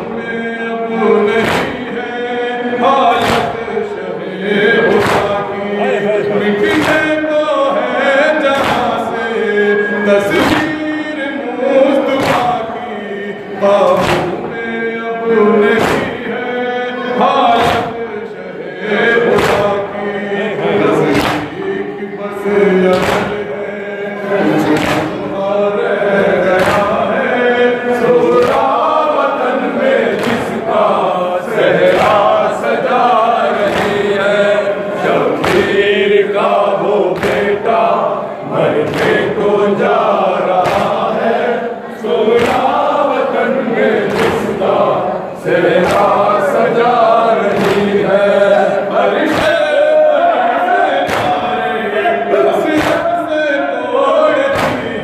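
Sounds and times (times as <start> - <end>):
male voices singing in chorus: 0.0 - 55.0
chest beating slaps: 1.3 - 2.0, 3.1 - 3.8, 4.8 - 5.8, 6.6 - 7.2, 8.4 - 9.1, 10.3 - 11.0, 12.0 - 12.8, 13.8 - 14.7, 15.6 - 16.4, 17.3 - 18.1, 19.2 - 20.0, 20.9 - 21.7, 22.9 - 23.7, 24.6 - 25.5, 26.4 - 29.0, 30.1 - 30.8, 31.8 - 34.6, 35.2 - 37.7, 38.8 - 39.4, 40.0 - 41.3, 42.3 - 42.9, 44.0 - 44.8, 45.7 - 46.4, 47.4 - 48.2, 49.2 - 49.9, 51.0 - 51.6, 52.7 - 53.3, 54.4 - 55.0.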